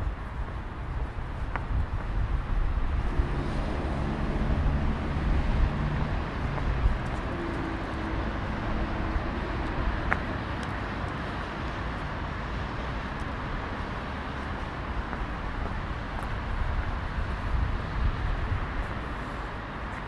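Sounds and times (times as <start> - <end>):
city background noise: 0.0 - 20.0
vehicle engine running close by: 2.7 - 11.5.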